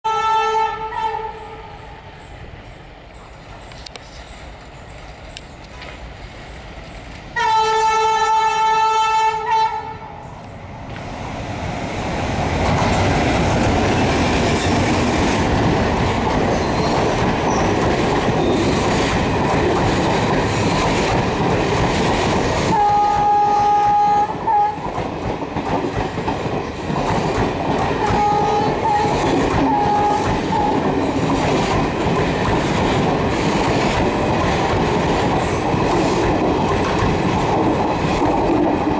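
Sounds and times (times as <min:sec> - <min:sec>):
locomotive horn blast: 0:00.0 - 0:01.7, 0:07.4 - 0:10.2, 0:22.7 - 0:24.8, 0:28.0 - 0:30.8
train coaches rumbling and clacking: 0:00.1 - 0:38.9.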